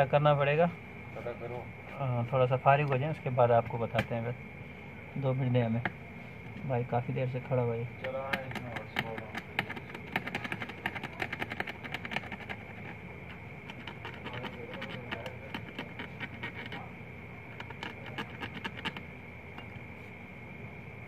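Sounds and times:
steady high whine: 0:00.0 - 0:21.0
plastic pick clicking and scratching: 0:08.0 - 0:16.9, 0:17.5 - 0:19.8.

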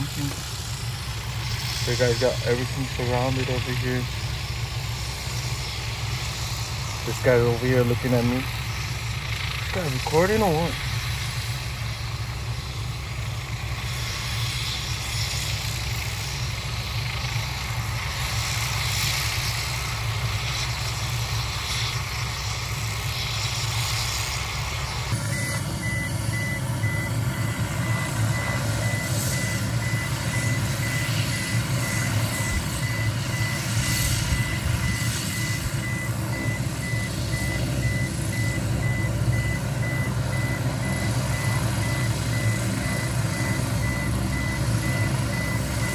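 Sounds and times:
heavy machinery engine rumble: 0:00.0 - 0:45.9
reversing alarm beeping: 0:25.1 - 0:45.9.

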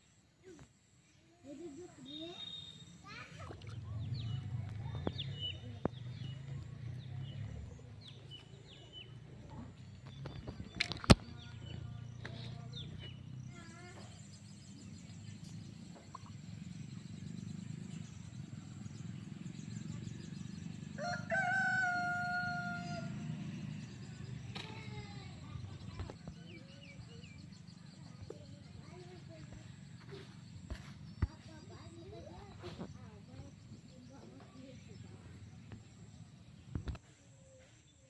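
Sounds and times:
small birds chirping: 0:00.4 - 0:22.0, 0:23.7 - 0:38.0
rooster crowing: 0:21.0 - 0:23.2.

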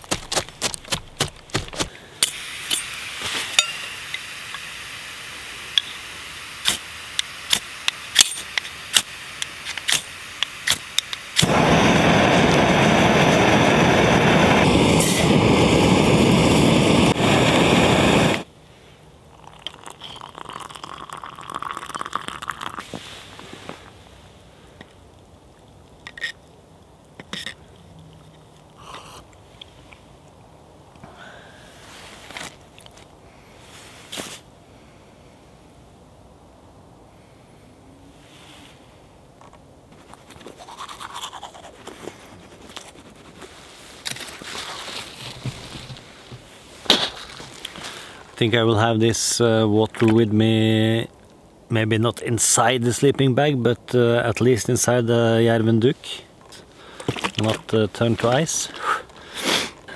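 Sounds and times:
gas burner hissing: 0:02.1 - 0:18.5
burner running loud: 0:09.9 - 0:18.5
rustling: 0:31.8 - 0:34.5, 0:39.4 - 0:48.4.

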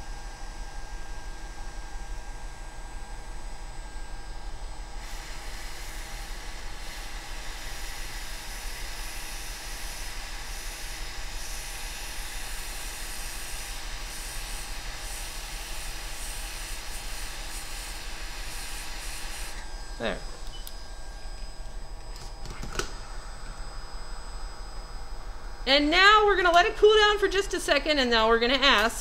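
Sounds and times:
hot air station hissing: 0:05.0 - 0:21.9.

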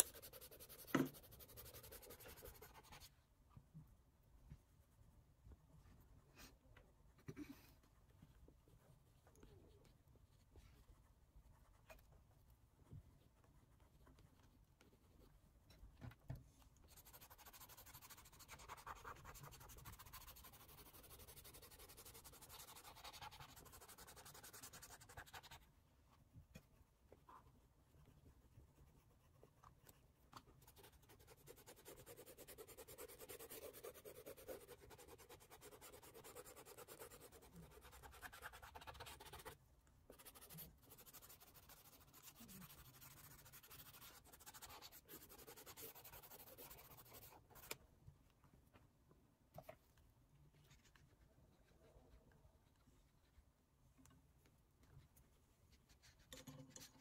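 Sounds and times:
pencil scratching on paper: 0:00.0 - 0:03.1, 0:16.9 - 0:25.6, 0:28.4 - 0:47.8.

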